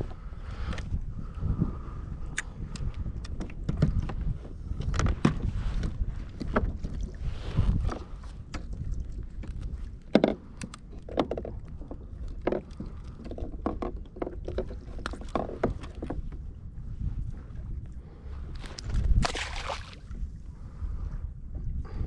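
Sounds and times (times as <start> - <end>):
clicks and knocks of fish handling: 2.3 - 16.4.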